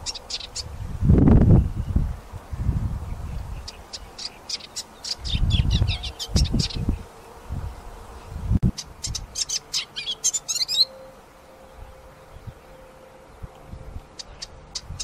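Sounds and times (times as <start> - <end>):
warbler chattering song: 0.0 - 15.0.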